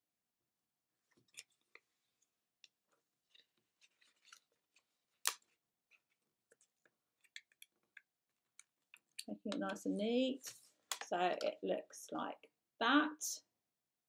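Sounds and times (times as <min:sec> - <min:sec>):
paper rustling and crackling: 0:02.9 - 0:07.6.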